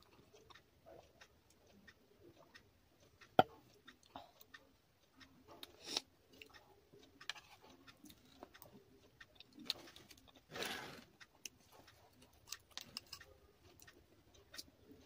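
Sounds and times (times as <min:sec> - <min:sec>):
chewing and mouth sounds: 0:11.4 - 0:14.7.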